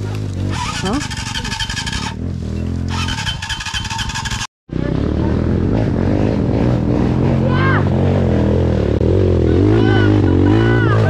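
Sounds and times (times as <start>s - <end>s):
dirt bike engine running: 0.0s - 11.0s.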